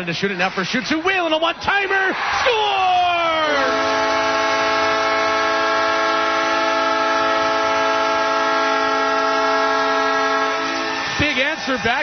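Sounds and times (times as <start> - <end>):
arena goal horn chord: 3.3 - 11.8.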